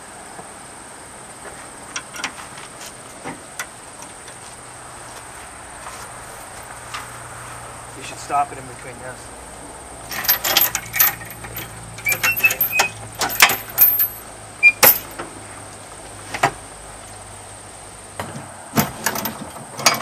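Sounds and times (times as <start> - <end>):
metal chain clinking and rattling: 10.1 - 15.2.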